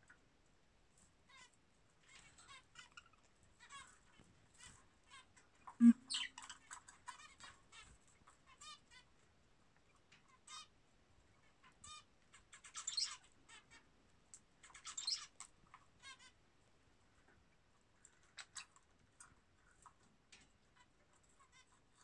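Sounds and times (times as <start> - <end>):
lovebirds chirping: 5.8 - 6.5.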